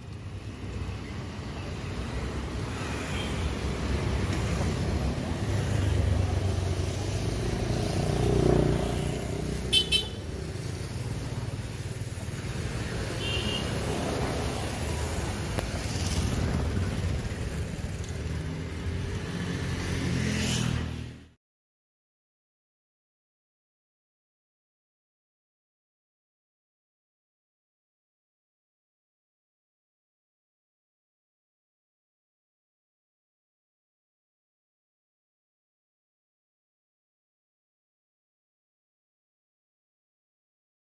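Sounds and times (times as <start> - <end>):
road traffic passing: 0.0 - 21.4
vehicle horn double beep: 9.7 - 10.2.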